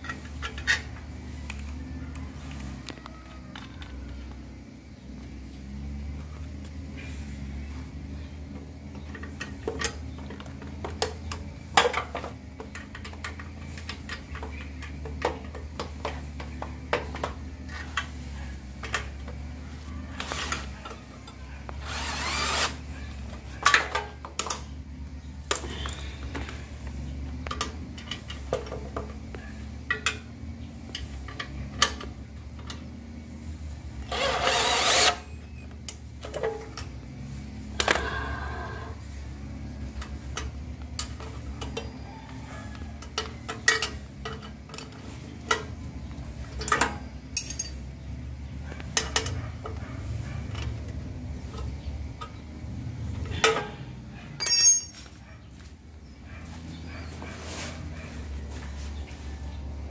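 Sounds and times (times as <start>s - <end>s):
cordless drill running: 21.8s - 22.8s, 34.1s - 35.2s
metal parts clinking: 46.6s - 47.8s, 54.4s - 55.2s.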